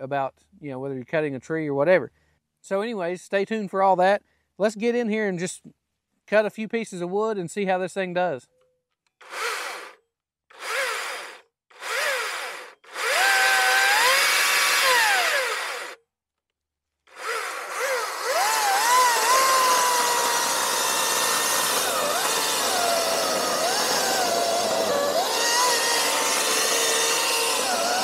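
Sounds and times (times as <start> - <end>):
chainsaw cutting log: 9.2 - 16.0, 17.1 - 28.0
electric chainsaw whining: 9.2 - 16.0, 17.1 - 28.0.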